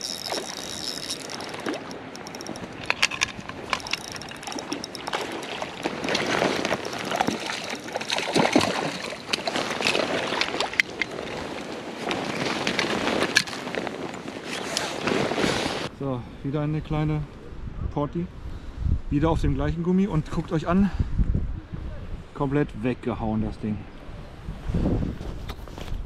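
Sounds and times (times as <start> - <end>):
fish thrashing and splashing water: 0.0 - 14.0.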